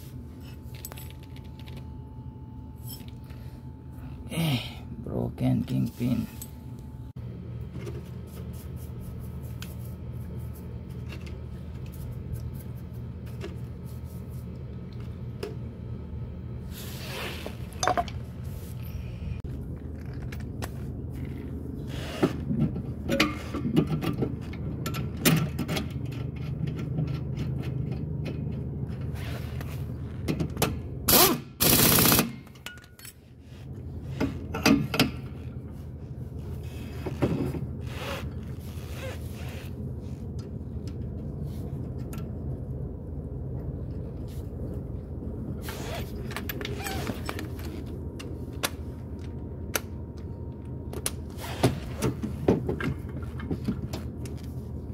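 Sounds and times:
steady low hum: 0.0s - 54.9s
metal tools clinking: 0.4s - 1.8s, 2.8s - 3.3s, 32.6s - 33.2s.

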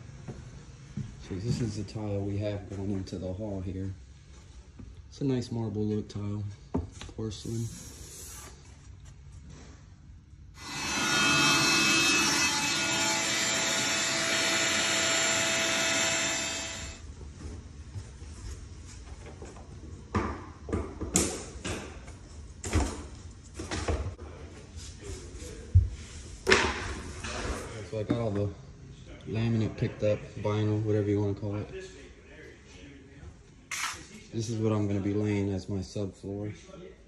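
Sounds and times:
power tool running: 10.6s - 17.0s.

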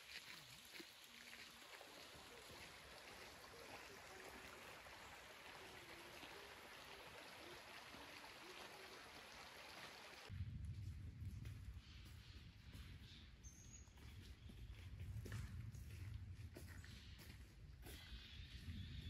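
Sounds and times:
small stream rushing: 0.0s - 10.3s.

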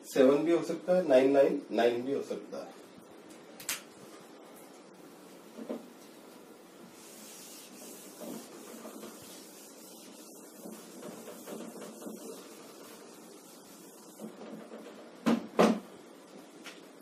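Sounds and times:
duster rubbing on whiteboard: 6.9s - 15.2s.

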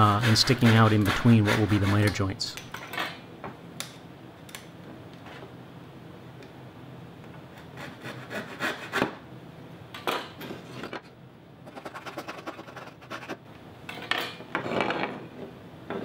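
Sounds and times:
wood being scraped by hand: 0.0s - 2.2s.

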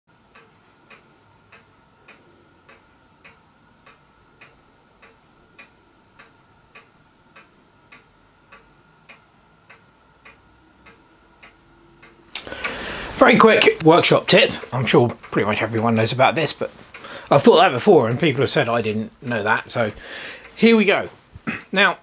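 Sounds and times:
faint steady tone: 0.2s - 13.9s
faint ticking: 0.2s - 22.0s.

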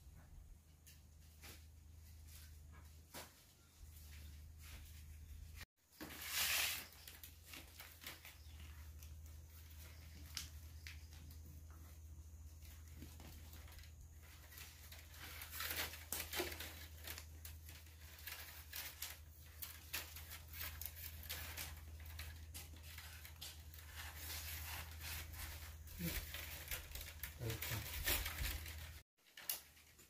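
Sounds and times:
bamboo splitting and tearing: 14.4s - 30.0s.

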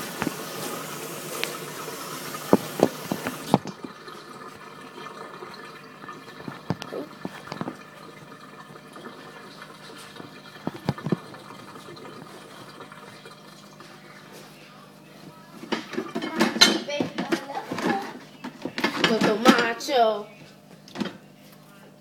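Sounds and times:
sausage sizzling in grease: 0.0s - 3.6s
grease popping: 0.0s - 14.1s.

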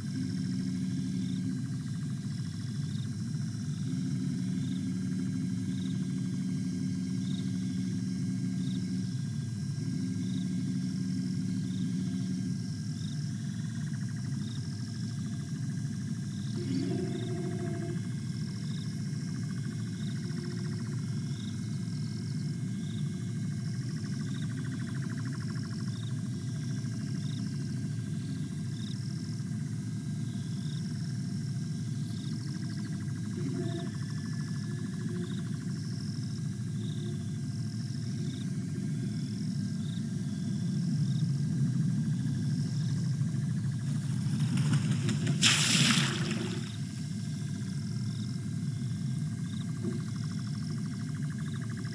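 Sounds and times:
high-pitched insect trill: 0.0s - 51.9s
steady low hum: 0.0s - 51.9s.

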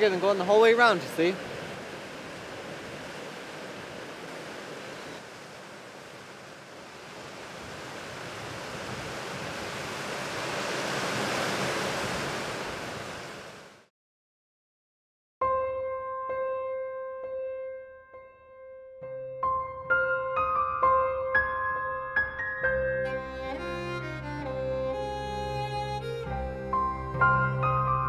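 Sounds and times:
water rushing over rocks: 0.0s - 13.8s.

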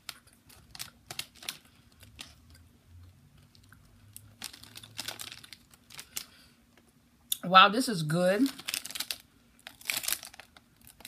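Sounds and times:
person chewing crunchy bar: 3.4s - 6.4s, 8.6s - 11.0s.

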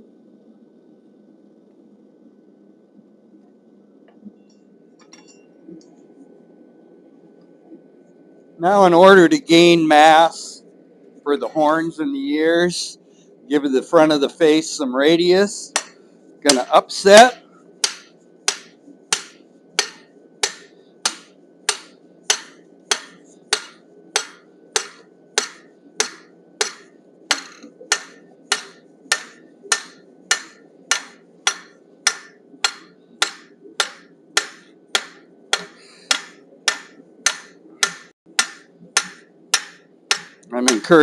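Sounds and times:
hammer ringing on hot steel: 15.4s - 41.0s.

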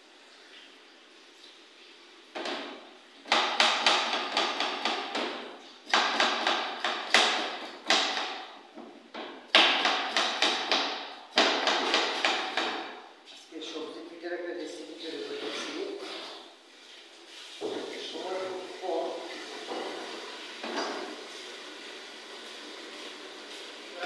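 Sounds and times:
knife chopping on a cutting board: 3.3s - 8.5s, 9.2s - 13.0s.

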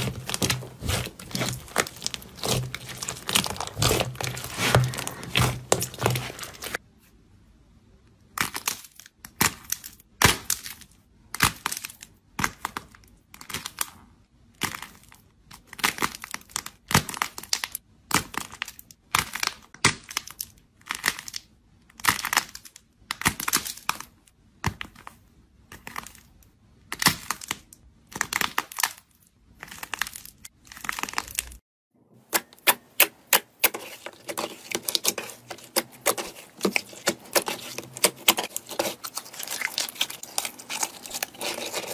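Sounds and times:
slime crunching between fingers: 0.0s - 6.8s, 33.7s - 41.9s.

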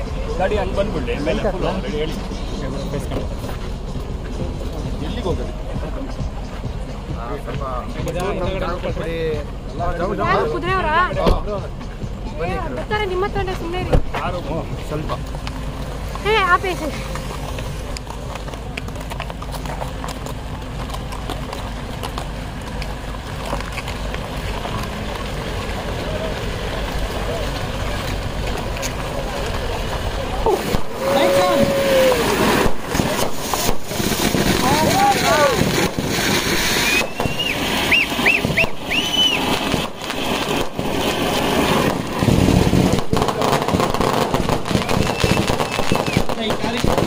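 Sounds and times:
crowd din: 0.0s - 47.0s
engine humming: 0.0s - 47.0s
short whistles: 36.7s - 39.5s, 44.7s - 46.3s.

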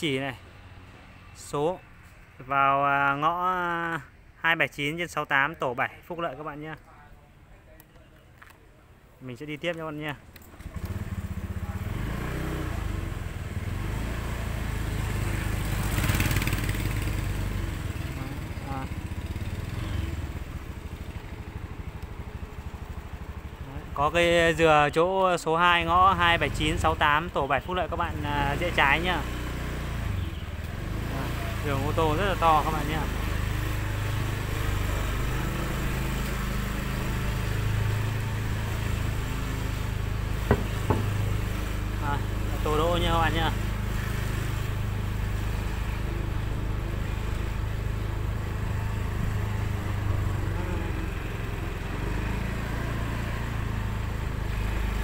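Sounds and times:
small motorbike engine running: 14.8s - 23.9s, 28.1s - 55.0s.

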